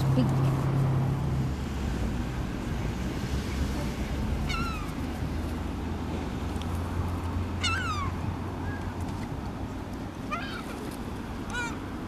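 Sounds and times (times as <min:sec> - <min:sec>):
gulls calling: 0:04.2 - 0:05.1, 0:07.4 - 0:09.0, 0:10.2 - 0:12.0.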